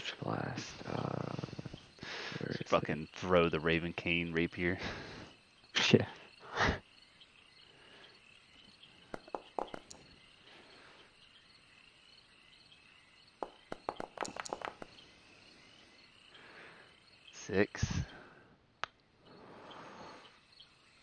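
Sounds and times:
insects chirping: 0:00.0 - 0:21.0
dice rolling clicks: 0:09.2 - 0:10.0, 0:13.4 - 0:14.9.

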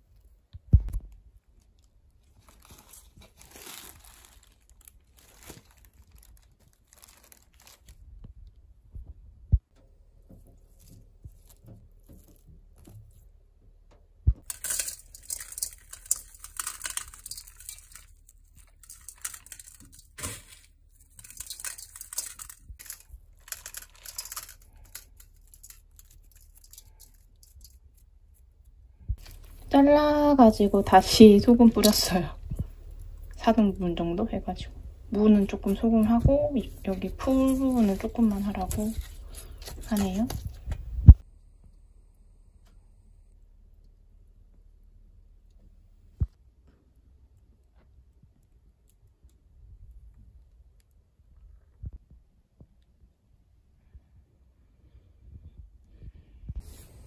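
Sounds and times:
hands rustling leafy greens: 0:01.6 - 0:08.0, 0:14.4 - 0:28.4, 0:29.2 - 0:41.2.

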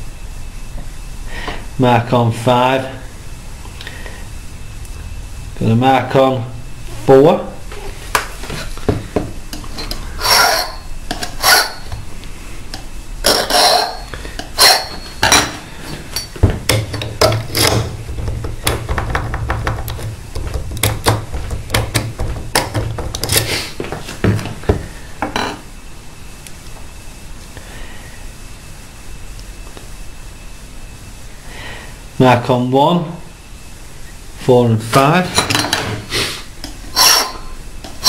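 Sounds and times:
file scraping metal key: 0:09.8 - 0:11.9, 0:13.3 - 0:15.3, 0:36.9 - 0:37.5.

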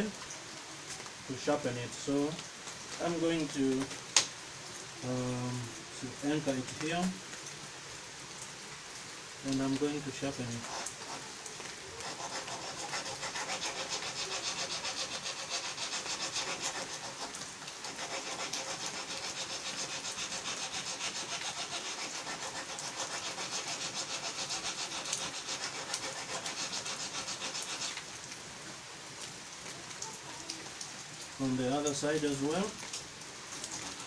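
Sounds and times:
metal file rasping on blade: 0:10.5 - 0:11.2, 0:12.0 - 0:28.0.

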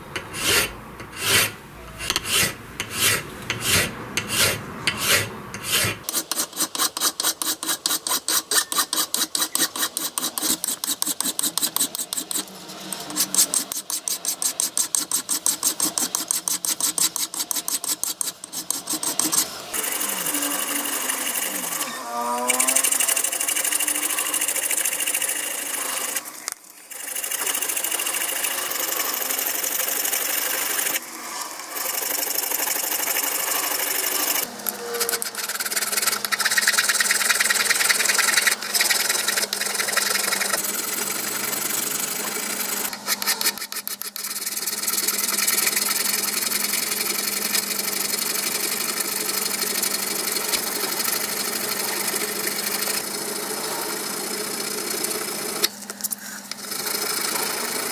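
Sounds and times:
hand file rasping on metal: 0:00.1 - 0:26.2, 0:33.0 - 0:46.6.

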